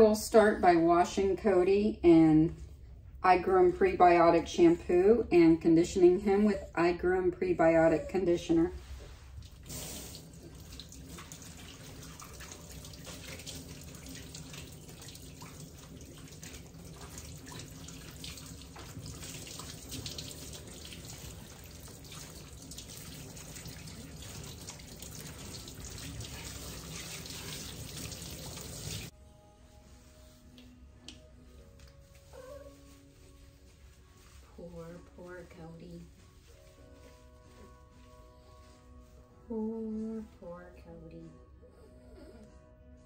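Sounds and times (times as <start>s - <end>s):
hose water spraying on dog: 8.9s - 29.1s.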